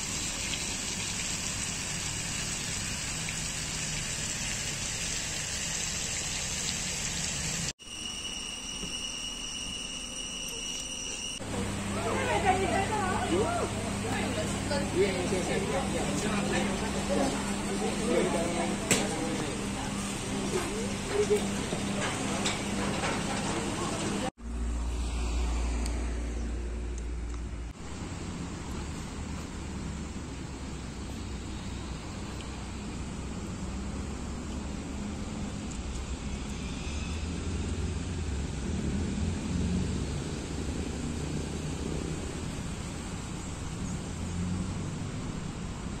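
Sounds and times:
faint voices: 0:11.4 - 0:24.3.

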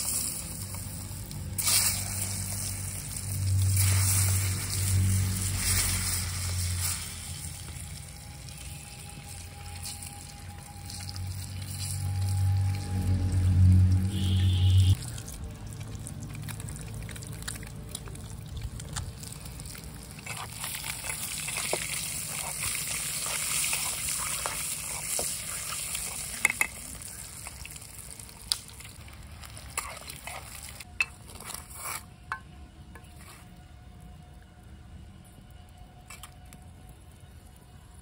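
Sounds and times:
eggs sizzling in hot oil: 0:00.0 - 0:31.4.

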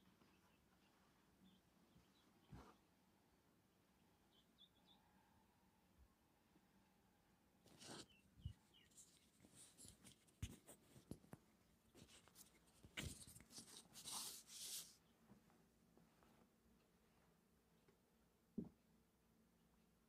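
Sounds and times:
paper rustling: 0:07.7 - 0:11.4, 0:12.0 - 0:15.0.

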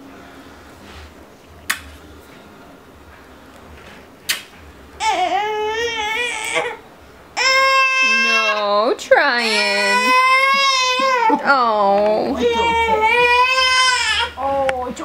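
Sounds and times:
infant fussing whine: 0:12.2 - 0:14.4.

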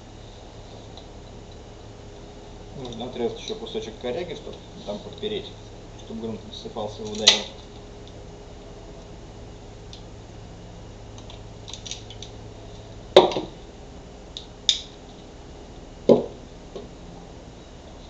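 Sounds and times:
pruning shears clicking: 0:07.0 - 0:07.9
wood snapping under shears: 0:07.0 - 0:09.1, 0:11.1 - 0:12.4, 0:13.2 - 0:13.6, 0:14.3 - 0:16.9
dull knock: 0:16.1 - 0:16.4.

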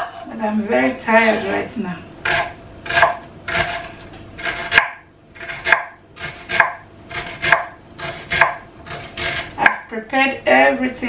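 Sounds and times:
knife chopping on cutting board: 0:02.2 - 0:09.9.

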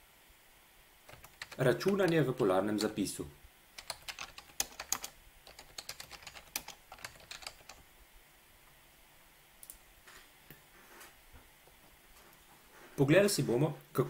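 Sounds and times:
computer keyboard key clicks: 0:01.1 - 0:02.2, 0:03.8 - 0:07.8.

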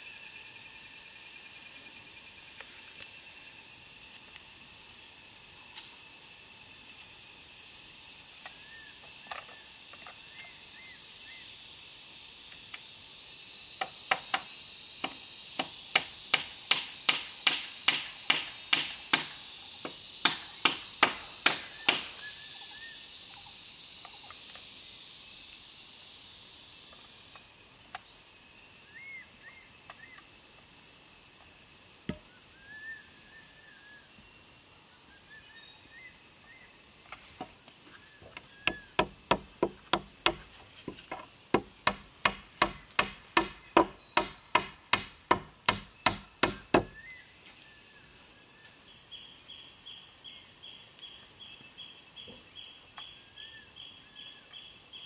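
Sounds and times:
high insect hiss: 0:00.0 - 0:55.0.

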